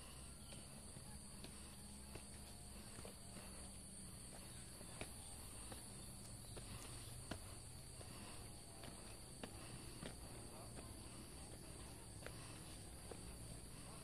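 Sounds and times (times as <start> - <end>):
footsteps on dirt trail: 0.0 - 14.0
high-pitched insect chorus: 0.0 - 14.0.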